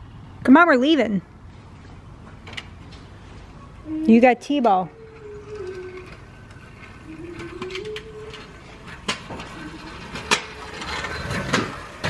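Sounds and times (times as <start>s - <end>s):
scooter wheels rattling on concrete: 4.1s - 12.0s.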